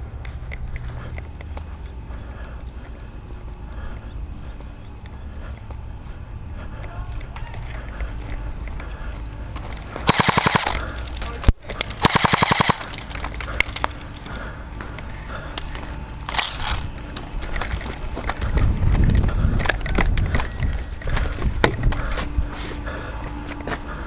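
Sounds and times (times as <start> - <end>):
low rumble: 0.0 - 24.0
airsoft rifle firing: 10.0 - 10.8, 12.0 - 13.1.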